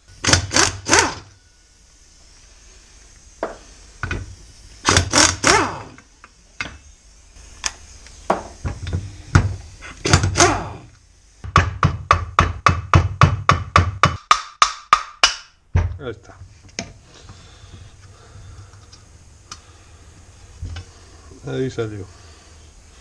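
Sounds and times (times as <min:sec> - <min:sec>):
pneumatic impact wrench bursts: 0:00.0 - 0:01.5, 0:02.8 - 0:11.5.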